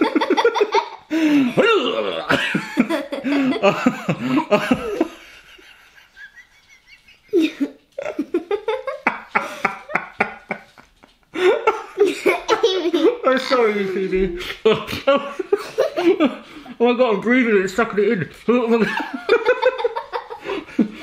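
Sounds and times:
man laughing: 0.0 - 12.4, 13.0 - 16.5
girl laughing: 0.0 - 16.3, 19.0 - 21.0.

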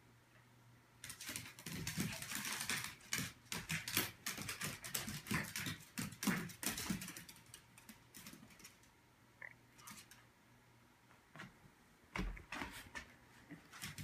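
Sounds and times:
dog claws clicking on wood floor: 1.0 - 8.9.

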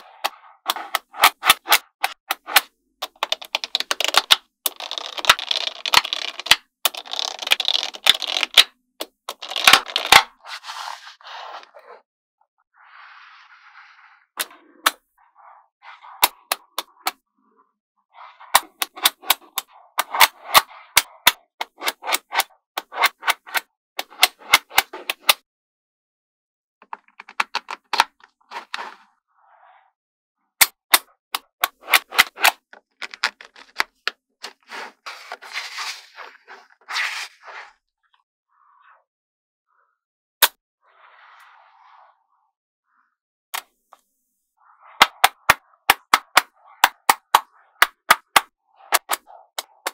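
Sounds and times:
balls rolling and scraping: 0.0 - 12.0, 12.8 - 25.4, 26.8 - 29.9, 31.4 - 39.0, 40.8 - 49.9
magnetic balls clicking together: 0.7 - 10.2
magnetic balls snapping together: 0.7 - 10.3, 18.5 - 25.4, 45.0 - 49.9.

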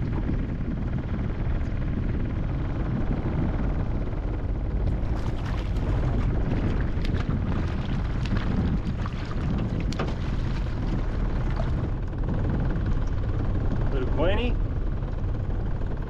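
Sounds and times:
wind buffeting microphone: 0.0 - 16.0
fish splashing at surface: 5.0 - 11.8.

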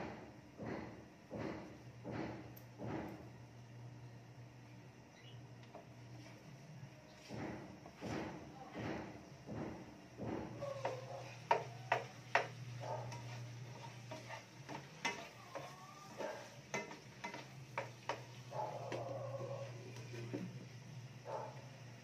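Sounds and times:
utensils clattering on cookware: 10.5 - 18.6.

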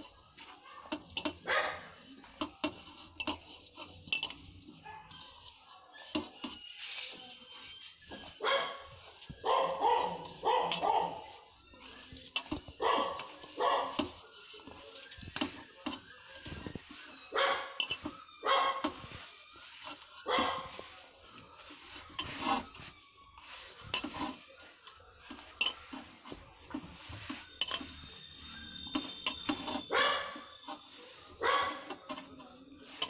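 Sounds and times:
dog barking: 1.4 - 1.9, 8.4 - 8.8, 9.4 - 11.2, 12.8 - 13.9, 17.4 - 17.8, 18.4 - 18.8, 29.9 - 30.4, 31.4 - 31.8.

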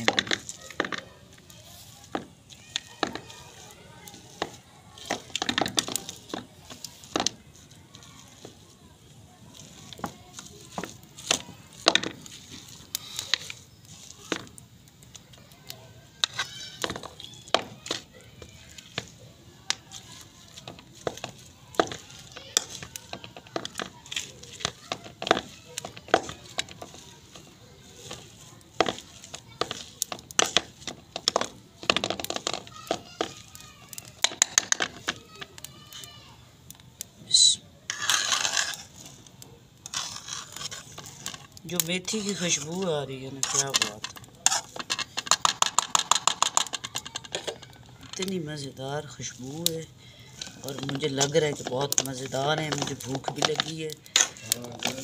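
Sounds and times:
potato masher tapping a pan: 19.7 - 35.7, 43.4 - 48.3.

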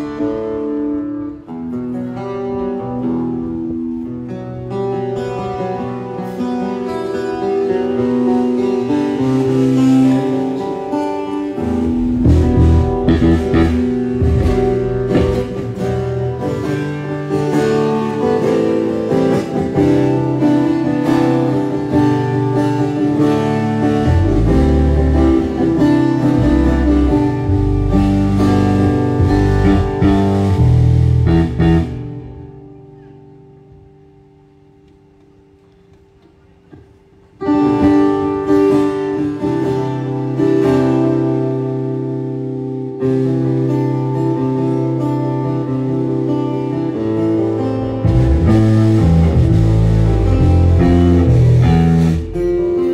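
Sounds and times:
acoustic-electric guitar through pa: 0.0 - 52.9
deep low notes: 11.8 - 16.1, 24.0 - 32.5.

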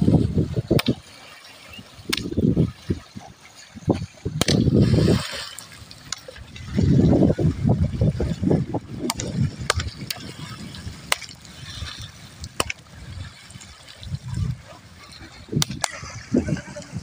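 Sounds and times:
pole slapping water: 0.0 - 17.0
wading through water: 0.0 - 17.0.

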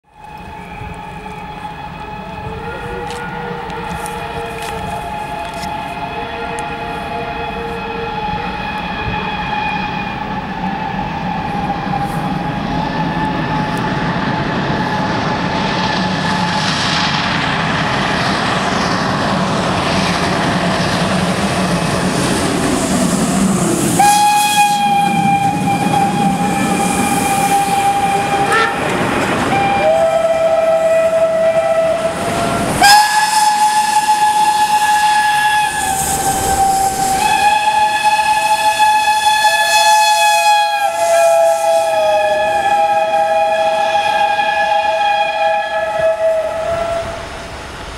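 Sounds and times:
steam train chuffing and rumble: 0.0 - 47.9
steam whistle blasts: 0.1 - 17.1, 23.9 - 47.3.

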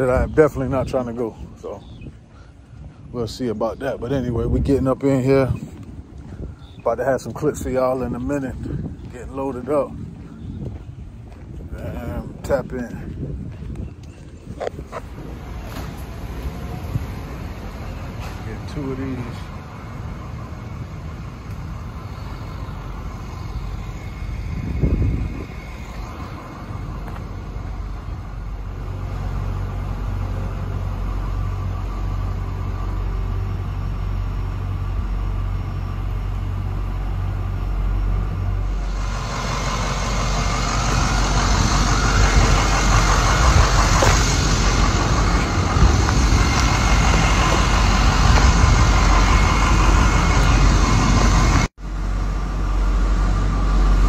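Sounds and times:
forklift engine hum: 13.1 - 54.0
even rushing noise: 14.7 - 54.0.

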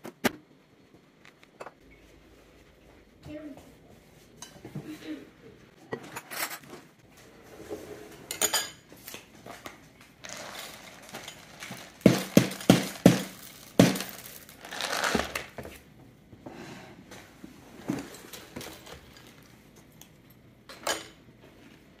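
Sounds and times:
cereal pouring into a bowl: 10.2 - 15.6
knocks on ceramic bowls: 12.0 - 14.4.

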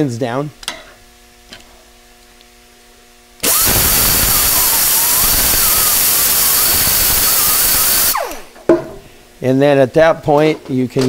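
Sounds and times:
rotary grinder whirring: 3.4 - 8.5.

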